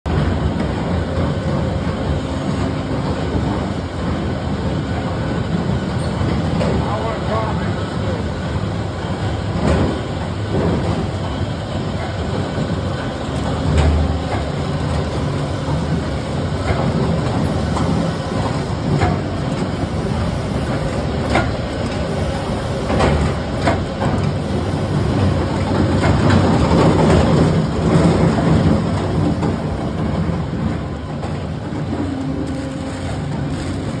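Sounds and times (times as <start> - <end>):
industrial machinery rumble: 0.0 - 34.0
machine clacks and knocks: 9.5 - 22.1, 22.7 - 24.4, 25.0 - 34.0.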